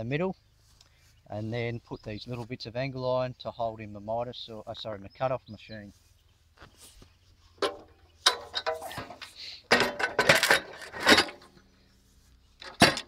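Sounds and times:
metal clanking on metal: 7.6s - 11.6s, 12.6s - 13.0s
metal scraping on metal: 7.6s - 11.6s.

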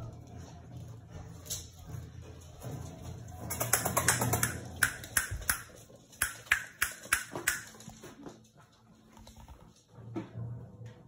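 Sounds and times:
dog claws clicking on hard floor: 1.3s - 8.5s.

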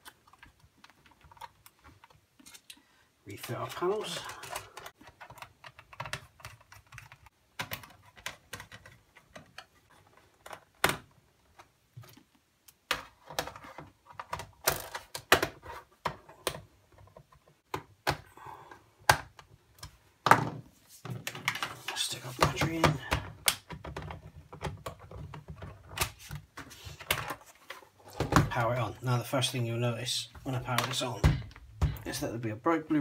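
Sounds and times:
plastic clicks and scrapes: 0.0s - 2.8s, 3.4s - 17.8s.

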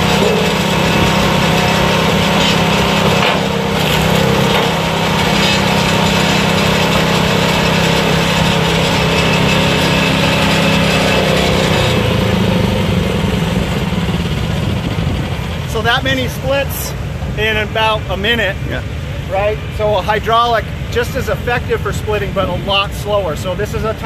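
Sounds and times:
small gas engine running: 0.0s - 15.9s.

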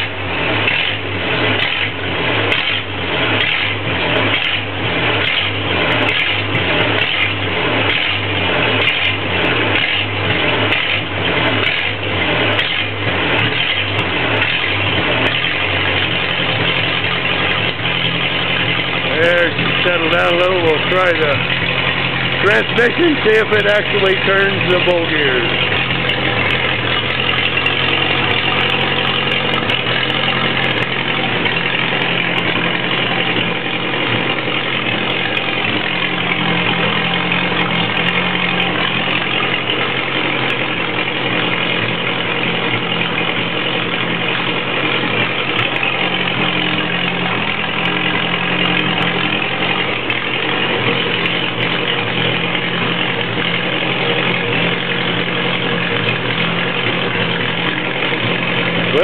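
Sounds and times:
crawler tractor engine running: 0.0s - 59.0s.

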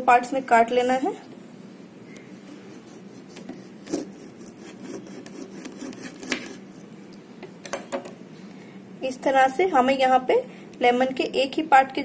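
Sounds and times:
faint steady hum: 0.0s - 12.0s
knife slicing through lemon: 2.4s - 6.8s.

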